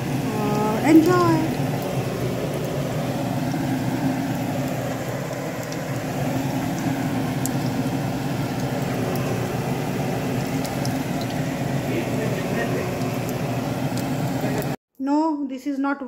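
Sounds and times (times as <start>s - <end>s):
hot oil sizzling: 0.0s - 14.8s
oil popping: 0.0s - 14.8s
steady low hum: 0.0s - 14.8s.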